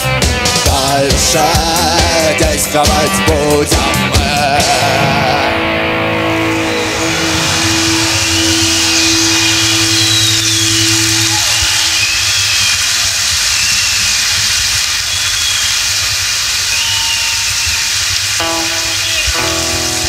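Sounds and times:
rock band chord ringing: 0.0 - 12.0, 18.4 - 20.0
crowd cheering and applauding: 4.6 - 20.0
whistles from crowd: 6.7 - 20.0.

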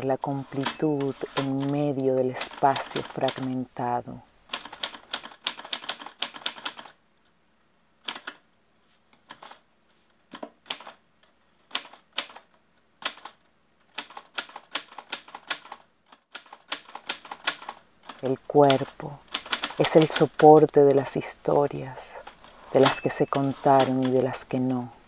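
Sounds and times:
typewriter keys striking: 4.5 - 6.9, 16.4 - 21.0, 22.3 - 24.4.

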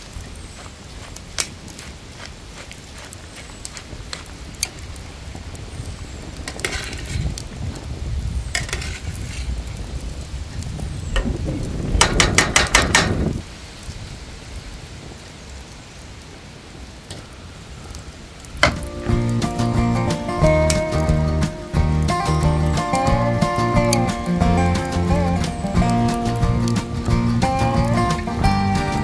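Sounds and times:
metal tongs scraping a pan: 6.5 - 7.3, 8.5 - 9.5
sauce simmering: 17.2 - 29.0.

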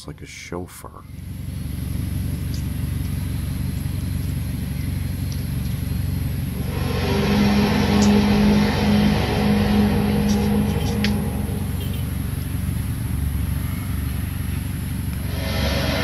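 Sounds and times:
low rumbling drone: 6.3 - 16.0
horn-like tone: 6.5 - 12.9, 15.2 - 16.0.

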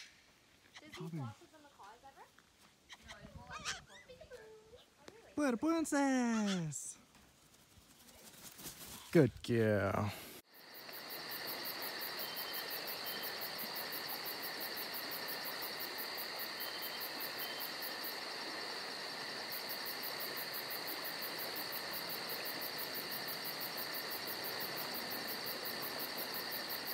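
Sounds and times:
shrill insect hum: 9.7 - 26.9
pulsing high insect trill: 10.4 - 26.9.

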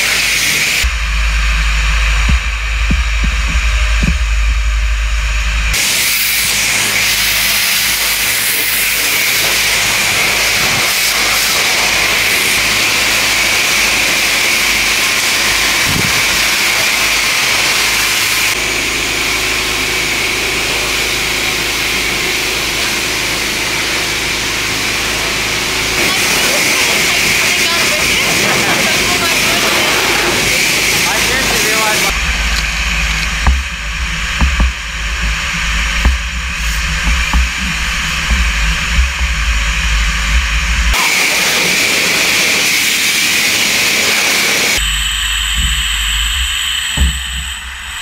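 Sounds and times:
deep hum: 0.6 - 7.4, 11.9 - 41.0, 44.8 - 48.0
pressure washer spray hissing: 5.8 - 18.6.

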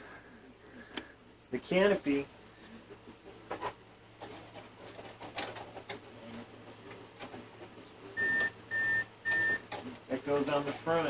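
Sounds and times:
plastic canopy clicks and rustles: 3.6 - 7.8.

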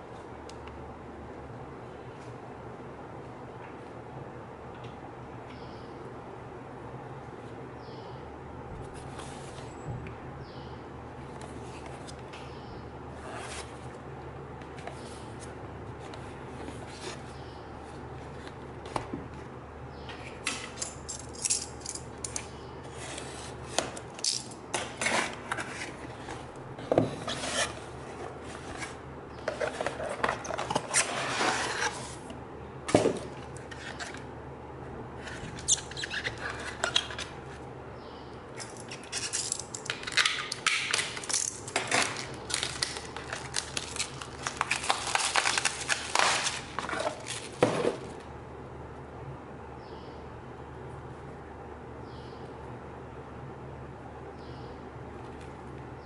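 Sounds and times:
cardboard clicks and crinkles: 24.7 - 32.4, 40.9 - 48.1
cardboard rubbing and scraping: 25.0 - 32.3.

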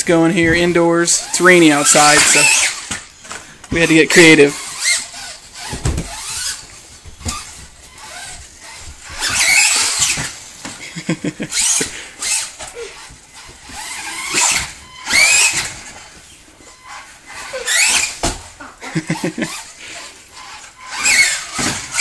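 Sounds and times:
electric toy truck motor whining: 2.2 - 3.0, 4.6 - 6.7, 7.3 - 10.5, 11.5 - 16.0, 16.7 - 18.2, 19.3 - 22.0.

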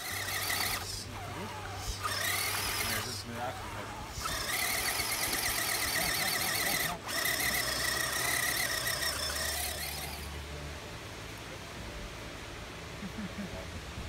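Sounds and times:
electric motor whining: 0.0 - 10.4.

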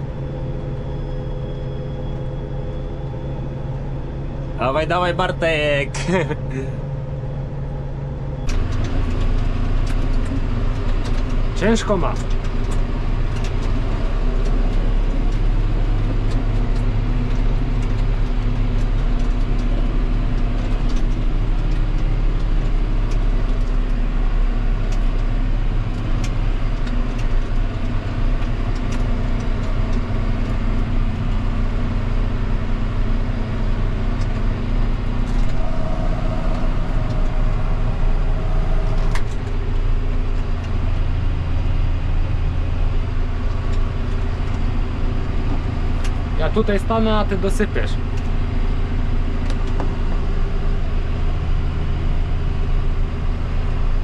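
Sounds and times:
combine harvester droning: 0.0 - 54.0
higher steady tone: 35.0 - 40.2.

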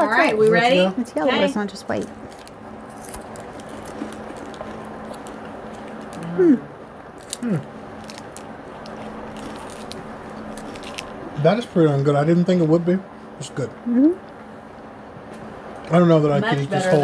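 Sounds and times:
steady low hum: 0.0 - 17.0
crunching of wafer chewing: 2.1 - 6.3, 7.1 - 11.4
person humming mm: 6.2 - 6.7, 7.4 - 7.7.

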